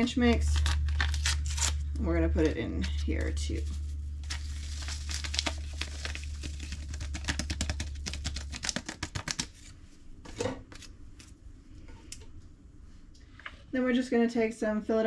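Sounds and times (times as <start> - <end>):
low hum: 0.0 - 8.7
packet crinkling: 0.0 - 9.7.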